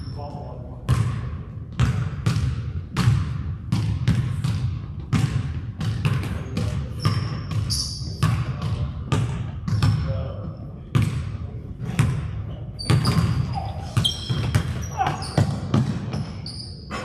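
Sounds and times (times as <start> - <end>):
basketball bouncing on hardwood: 0.9 - 10.0, 10.9 - 11.2, 12.8 - 16.3
high squeak: 12.8 - 15.5, 16.2 - 17.0.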